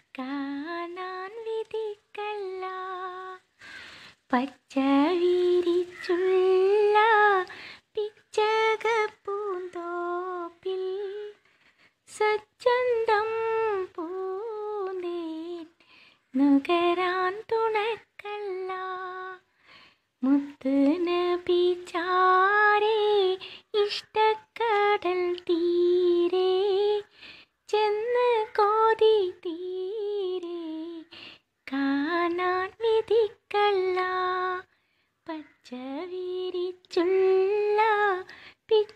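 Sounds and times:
woman singing unaccompanied: 0.0 - 38.9.

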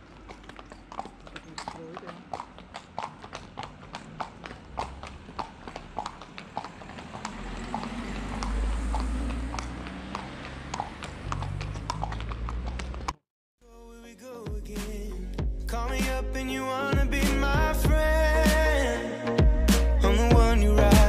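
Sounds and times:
horse hooves on asphalt: 0.0 - 13.2
car driving past: 0.1 - 13.2.

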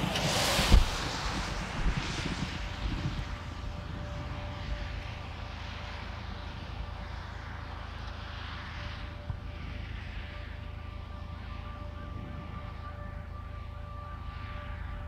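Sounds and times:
strong wind rushing past microphone: 0.0 - 10.2, 11.9 - 12.9.

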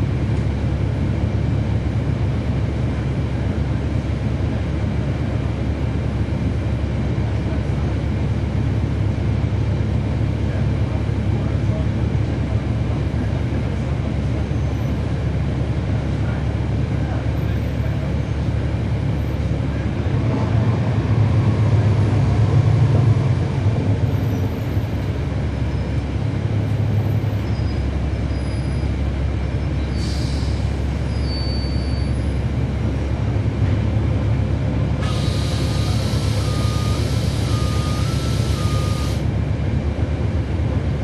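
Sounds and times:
bus diesel engine running: 0.0 - 41.0
air brake hiss: 29.9 - 30.8, 35.0 - 39.2.

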